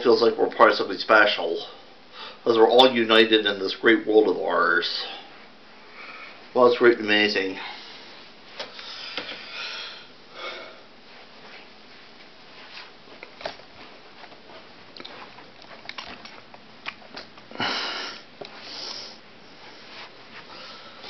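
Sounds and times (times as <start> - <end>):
person breathing and sniffing: 17.5 - 21.0.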